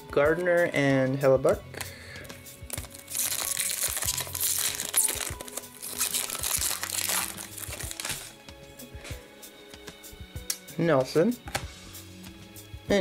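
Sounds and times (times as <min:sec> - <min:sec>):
foil wrapper crinkling: 0:02.7 - 0:08.4.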